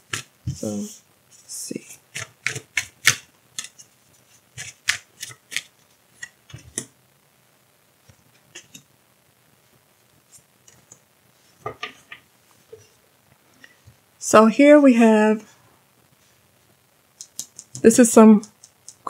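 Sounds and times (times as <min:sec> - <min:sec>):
cards being shuffled: 0:02.1 - 0:06.9.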